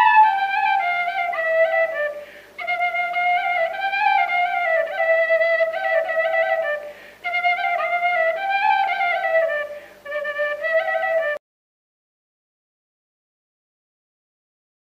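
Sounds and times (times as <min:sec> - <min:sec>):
solo flute slow melody: 0:00.0 - 0:11.4.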